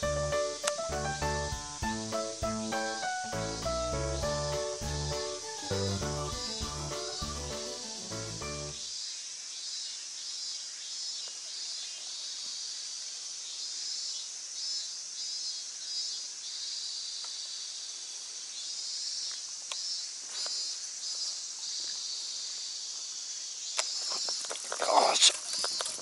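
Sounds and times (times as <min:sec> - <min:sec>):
chorus of insects singing: 0:00.0 - 0:08.8.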